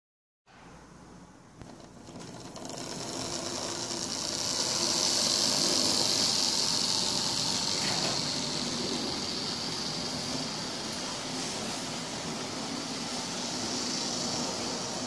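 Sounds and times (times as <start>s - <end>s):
model train motor whirr: 1.6s - 15.0s
hissing rush of passing train: 3.5s - 15.0s.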